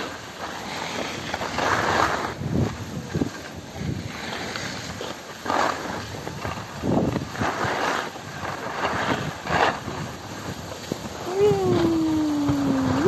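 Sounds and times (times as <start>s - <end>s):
skis scraping over snow: 0.0s - 11.1s.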